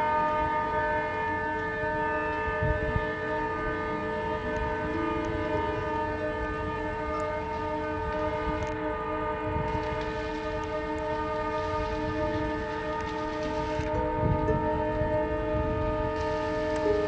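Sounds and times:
siren steady horn-like tone: 0:00.0 - 0:17.0.

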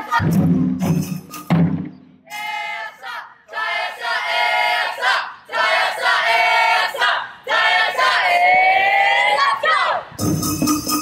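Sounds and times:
high-pitched voices shouting together: 0:08.0 - 0:10.1.

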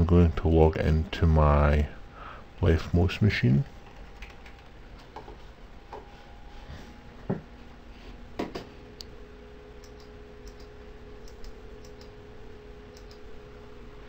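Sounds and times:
faint steady hum: 0:00.0 - 0:14.0
computer keyboard clicks: 0:03.9 - 0:04.7, 0:09.8 - 0:12.1, 0:12.9 - 0:13.2.

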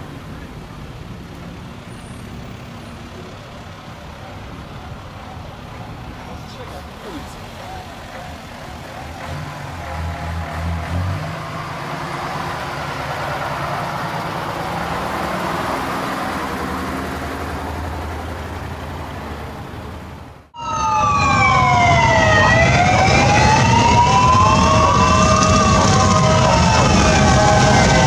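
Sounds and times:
motorcycle engines: 0:00.0 - 0:28.0
vehicles engine rumble: 0:00.0 - 0:28.0
siren wailing: 0:06.4 - 0:16.8, 0:20.6 - 0:28.0.

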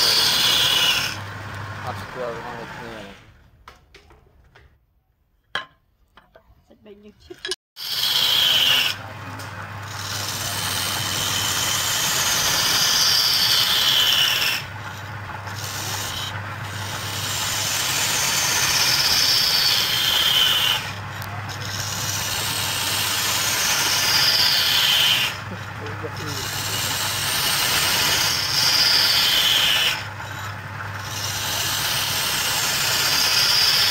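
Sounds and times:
chisel scraping wood on lathe: 0:00.0 - 0:03.1, 0:07.8 - 0:33.9
lathe motor hum: 0:00.0 - 0:03.2, 0:07.8 - 0:33.9.

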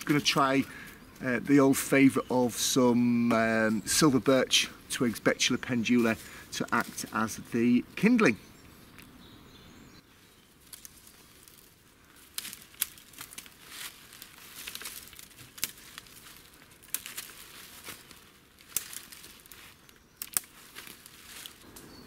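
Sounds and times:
dry brush rustling: 0:00.0 - 0:08.2, 0:10.5 - 0:22.0
twigs snapping: 0:10.6 - 0:21.9.

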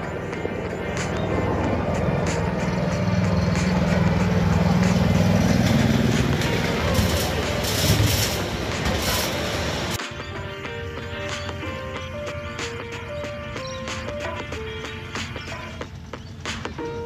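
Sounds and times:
locomotive motor hum: 0:00.0 - 0:10.0
train cars clicking and rattling: 0:00.0 - 0:10.0.

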